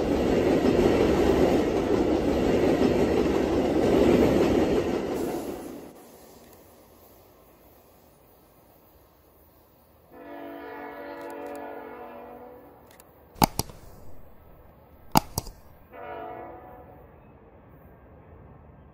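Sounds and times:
distant train horn blasts: 10.1s - 12.8s, 15.9s - 17.2s
sharp loud clicks: 13.4s - 15.8s.

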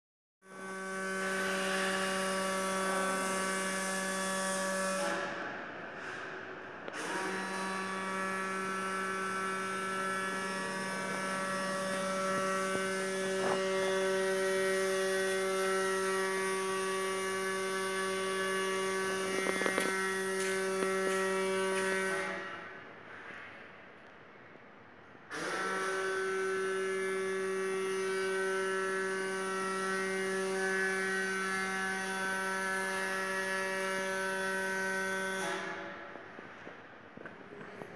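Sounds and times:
machine hum: 0.5s - 23.6s.

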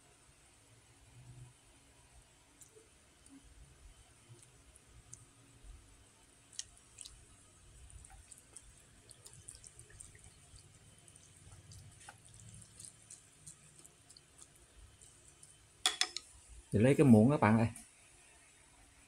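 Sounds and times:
broth dripping: 2.6s - 16.8s
chopsticks clicking in bowl: 15.9s - 16.3s.

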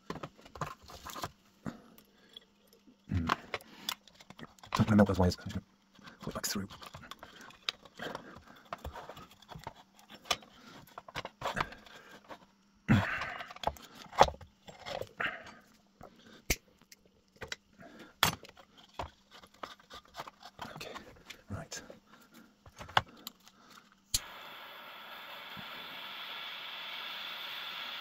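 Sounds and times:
lamp and cable being handled: 16.8s - 21.4s.

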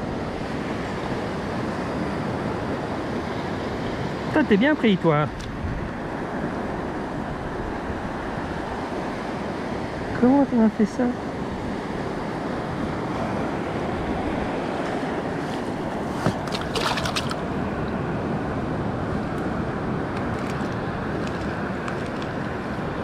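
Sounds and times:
surf rushing on shore: 0.0s - 23.0s
wind buffeting microphone: 5.0s - 9.6s
handling rustles and clicks: 20.2s - 22.6s.

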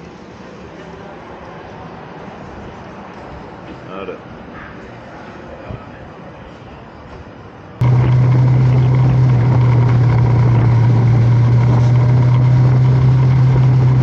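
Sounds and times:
motorcycle engine running: 7.8s - 14.0s
rushing noise: 7.8s - 14.0s.

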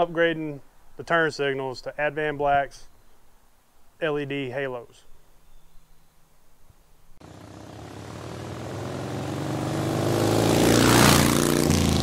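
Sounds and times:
motorcycle engine approaching: 7.2s - 12.0s.

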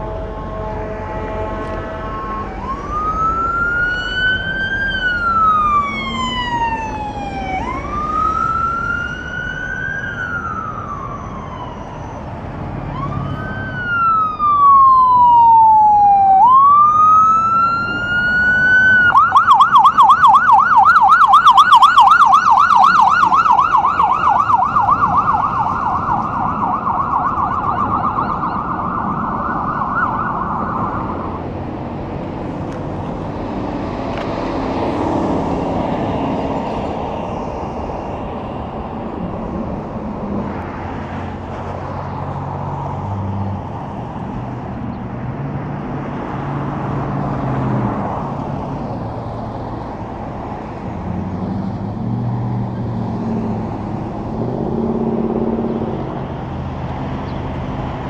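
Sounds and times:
road traffic noise: 0.0s - 58.0s
emergency siren wailing and yelping: 1.6s - 31.8s.

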